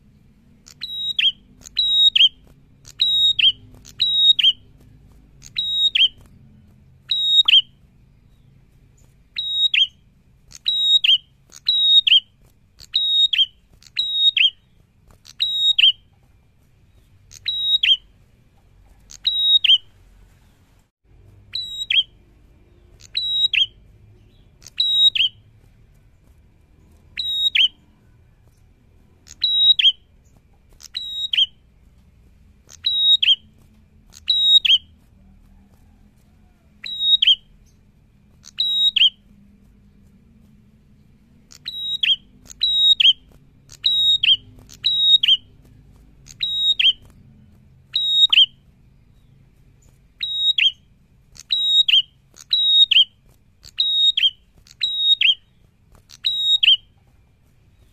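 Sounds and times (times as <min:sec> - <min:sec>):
bird singing high sharp notes: 0:00.6 - 0:06.4, 0:07.0 - 0:16.1, 0:16.9 - 0:18.2, 0:19.1 - 0:19.9, 0:21.5 - 0:25.5, 0:26.9 - 0:28.1, 0:29.2 - 0:31.7, 0:32.7 - 0:33.5, 0:34.1 - 0:35.0, 0:36.8 - 0:37.8, 0:38.4 - 0:39.3, 0:41.4 - 0:45.6, 0:46.2 - 0:47.2, 0:47.9 - 0:57.0.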